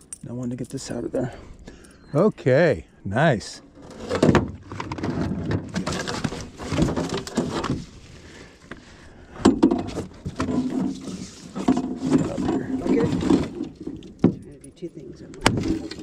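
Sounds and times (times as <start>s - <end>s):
knocks and rattles in metal boat: 3.8s - 8.0s, 9.4s - 14.7s, 15.3s - 16.0s.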